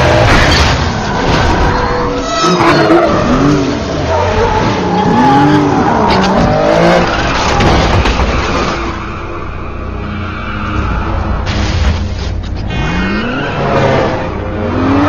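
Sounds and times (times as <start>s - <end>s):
tyres skidding and squealing: 0.0s - 15.0s
car engines revving hard: 10.7s - 15.0s.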